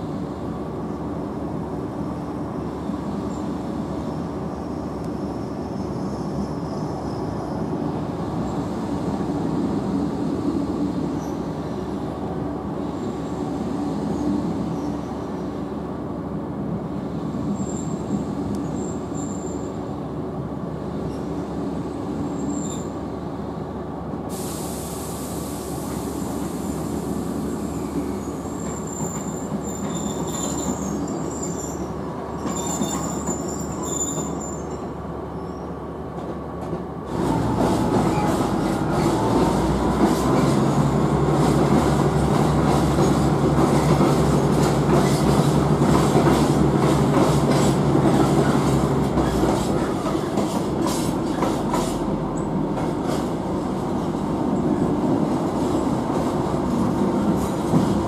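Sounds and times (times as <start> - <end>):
train running on rails: 0.0 - 58.0
high wheel squeals: 27.7 - 35.7.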